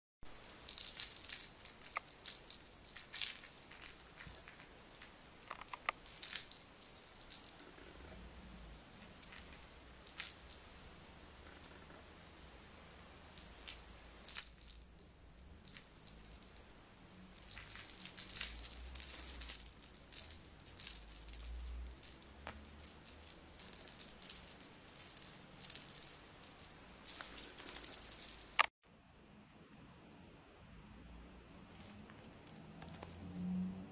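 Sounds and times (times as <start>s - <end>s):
high-pitched rattling: 0.4s - 11.5s, 13.3s - 28.7s.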